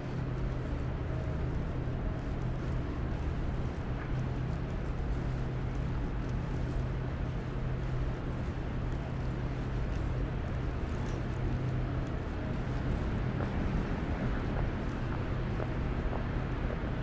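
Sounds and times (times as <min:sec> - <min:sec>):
low mechanical hum: 0:00.0 - 0:17.0
street noise: 0:08.2 - 0:17.0.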